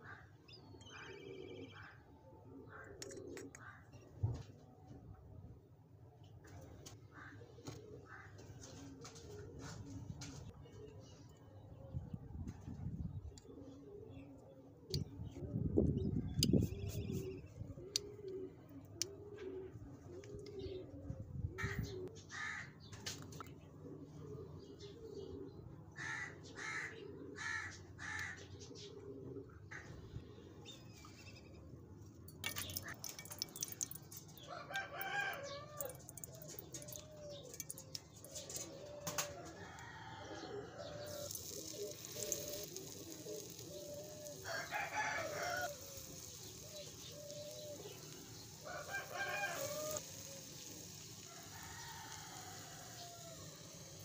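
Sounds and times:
frying oil hissing: 0:35.7 - 0:38.0, 0:41.0 - 0:54.0.

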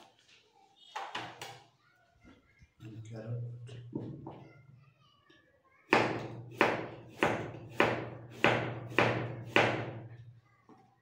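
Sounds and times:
knife chopping on cutting board: 0:05.9 - 0:10.0.

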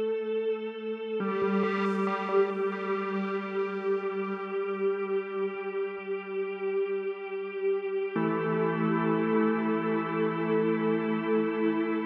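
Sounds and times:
ambient electronic chord: 0:01.2 - 0:07.1.

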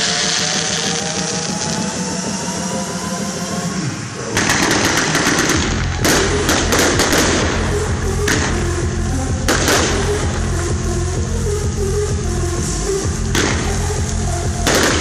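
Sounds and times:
fireworks hissing: 0:00.0 - 0:01.9
fireworks crackling: 0:00.0 - 0:02.2, 0:04.2 - 0:08.7, 0:13.4 - 0:15.0
fireworks bang: 0:04.4 - 0:07.7, 0:09.5 - 0:10.1, 0:14.6 - 0:15.0.

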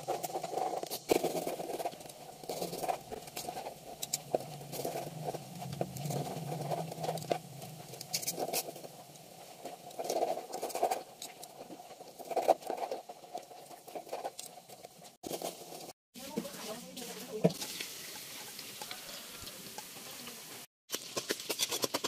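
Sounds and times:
low hum: 0:01.4 - 0:10.0.

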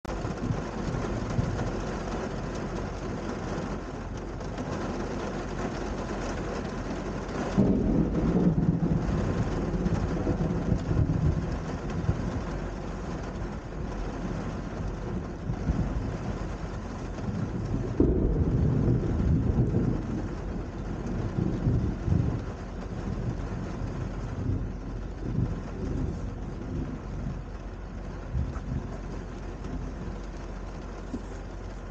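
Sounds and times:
steady rain: 0:00.0 - 0:31.9
thunder rumbling: 0:00.1 - 0:31.9.

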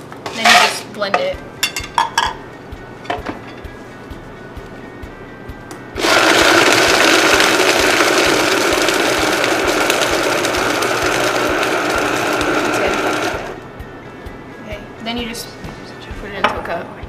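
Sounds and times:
blender motor whining: 0:06.0 - 0:13.6.

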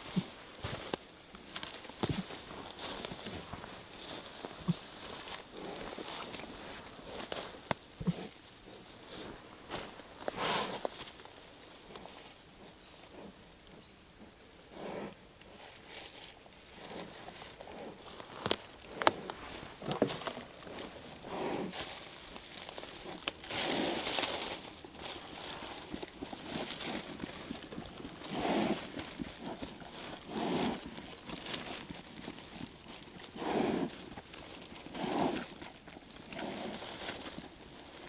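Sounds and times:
dry leaves crackling: 0:00.0 - 0:07.8, 0:15.6 - 0:38.0
bear snuffling breaths: 0:02.1 - 0:07.4, 0:08.0 - 0:11.0, 0:14.7 - 0:16.1, 0:16.8 - 0:22.0, 0:22.9 - 0:37.8.

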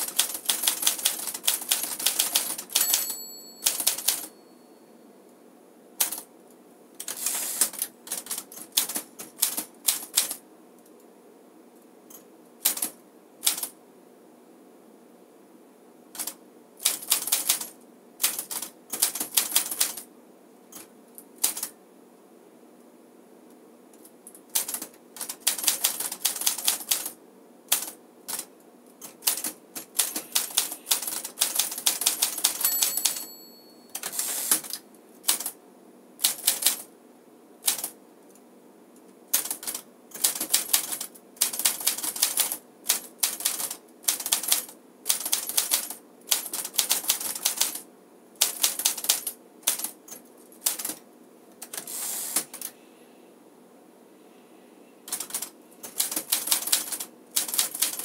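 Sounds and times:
manual typewriter typing: 0:00.0 - 0:04.3, 0:06.0 - 0:06.3, 0:07.0 - 0:10.4, 0:12.6 - 0:13.7, 0:16.2 - 0:20.0, 0:20.8 - 0:21.7, 0:24.5 - 0:27.1, 0:27.7 - 0:33.3, 0:33.9 - 0:35.5, 0:36.2 - 0:36.8, 0:37.6 - 0:37.9, 0:39.3 - 0:47.8, 0:48.4 - 0:51.0, 0:55.1 - 0:58.0
typewriter carriage return: 0:00.0 - 0:04.3, 0:07.0 - 0:10.3, 0:29.0 - 0:33.3, 0:33.9 - 0:35.5
typewriter margin bell ring: 0:02.8 - 0:04.9, 0:30.1 - 0:31.2, 0:32.5 - 0:34.6.

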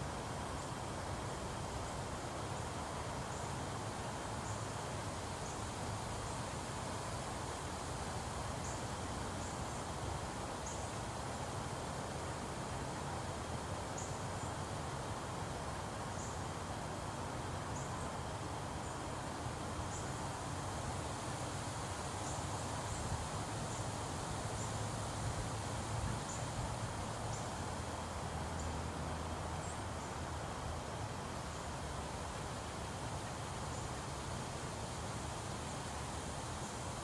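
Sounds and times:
even hiss: 0:00.0 - 0:37.0.

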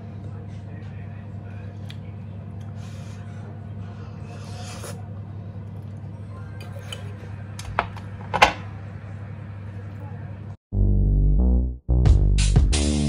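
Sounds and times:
steady low hum: 0:00.0 - 0:10.6
noodles being slurped: 0:04.3 - 0:05.1.

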